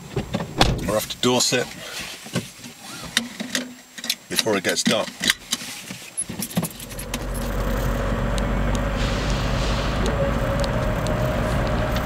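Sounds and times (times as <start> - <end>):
car engine and road noise: 6.2 - 12.0.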